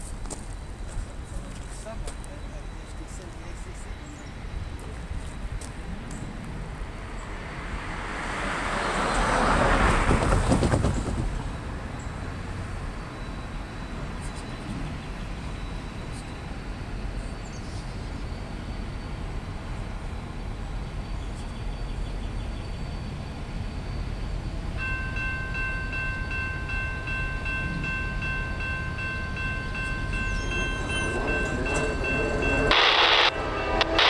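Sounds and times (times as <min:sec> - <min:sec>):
locomotive rumble: 0:00.0 - 0:34.0
train air horn: 0:30.9 - 0:34.0.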